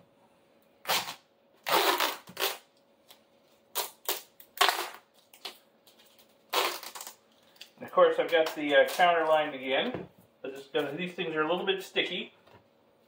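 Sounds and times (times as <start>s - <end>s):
duct tape peeling: 0.8s - 9.2s.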